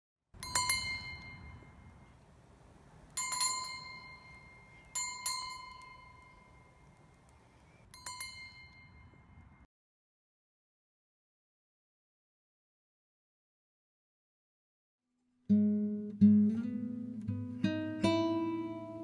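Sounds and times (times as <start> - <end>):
small bell ringing: 0.4 - 2.2, 3.1 - 9.7.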